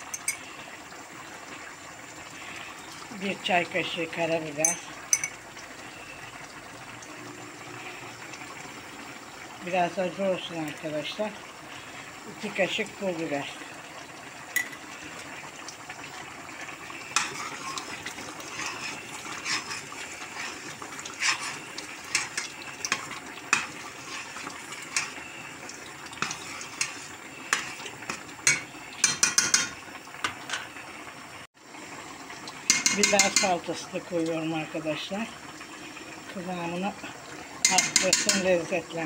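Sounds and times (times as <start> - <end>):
metal spoon scraping pot: 17.1 - 25.2, 26.2 - 29.8.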